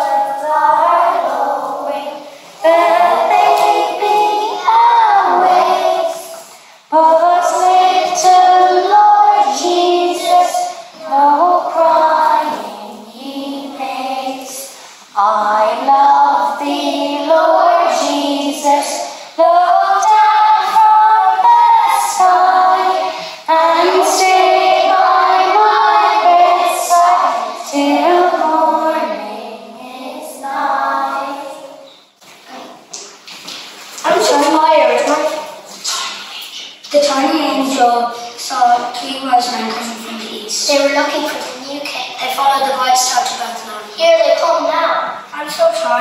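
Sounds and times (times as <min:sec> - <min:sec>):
children singing: 0:00.0 - 0:31.9.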